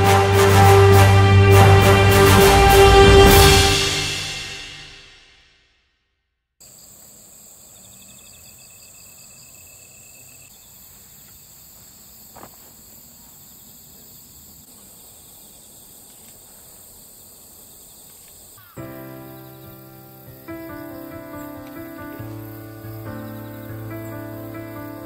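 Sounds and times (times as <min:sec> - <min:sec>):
insects chirping: 0:06.6 - 0:25.0.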